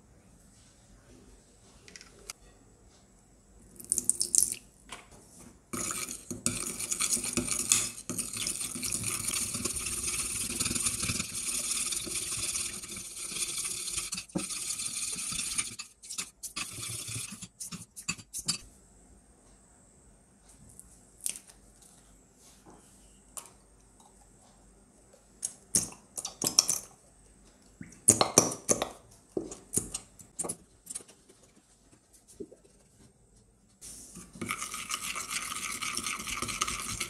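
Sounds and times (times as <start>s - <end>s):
spoon scraping glass bowl: 5.8s - 18.6s, 34.2s - 37.0s.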